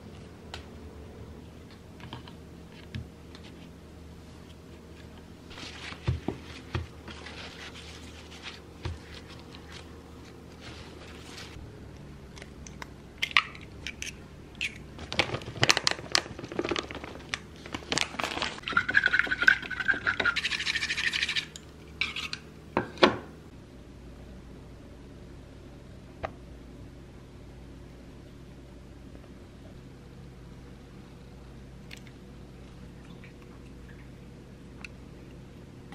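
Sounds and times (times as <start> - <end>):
chopsticks beating egg in bowl: 18.6 - 22.4.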